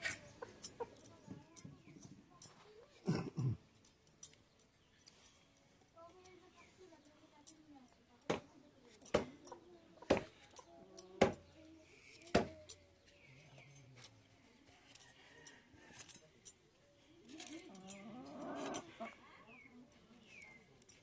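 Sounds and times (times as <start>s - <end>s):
light clinks and taps: 3.7s - 9.7s.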